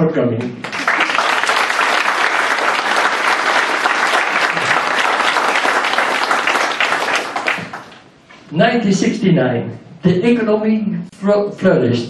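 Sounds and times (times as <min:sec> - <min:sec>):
audience applauding: 0:00.5 - 0:08.1.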